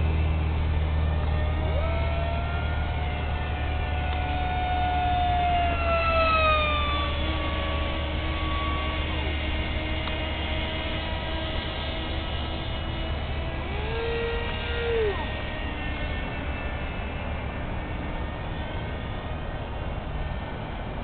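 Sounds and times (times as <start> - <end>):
constant low hum: 0.0 - 21.0
electric motors and propellers whining: 0.0 - 21.0.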